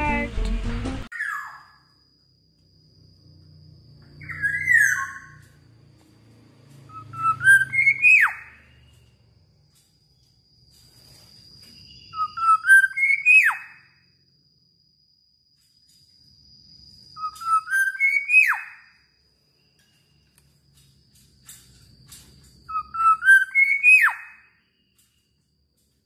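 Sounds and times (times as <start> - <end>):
bird whistling song: 4.1 - 5.5, 6.9 - 9.1, 11.6 - 14.0, 17.1 - 19.0, 22.6 - 25.2.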